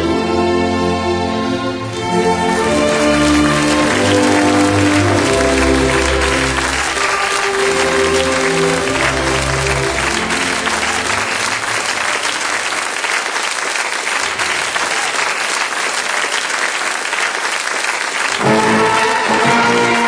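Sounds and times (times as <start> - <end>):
music: 0.0 - 12.4, 18.3 - 20.0
audience applauding: 1.9 - 20.0.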